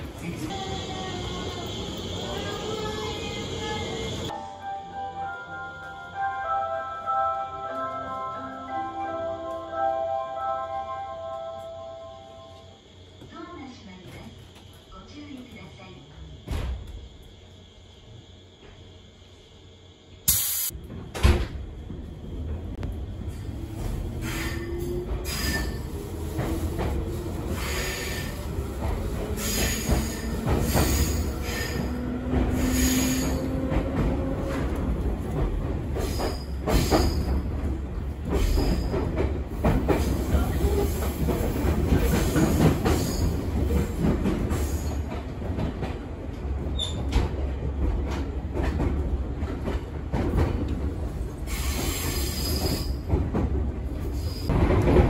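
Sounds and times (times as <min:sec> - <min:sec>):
train running rumble: 0:00.0 - 0:04.4, 0:12.4 - 0:55.0
high wheel squeals: 0:24.2 - 0:25.9, 0:29.3 - 0:33.7.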